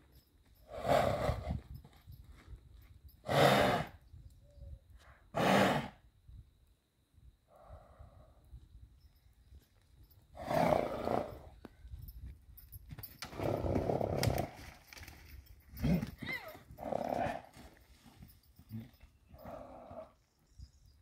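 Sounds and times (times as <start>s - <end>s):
horse snorting loudly: 3.3s - 3.9s, 5.3s - 6.0s, 10.4s - 11.4s, 13.2s - 14.6s, 16.8s - 17.5s, 19.4s - 20.1s.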